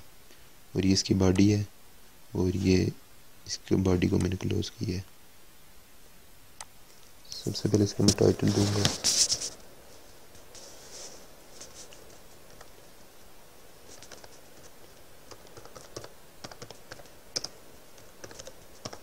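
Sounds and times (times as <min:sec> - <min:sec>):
keyboard typing: 0:13.9 - 0:19.0.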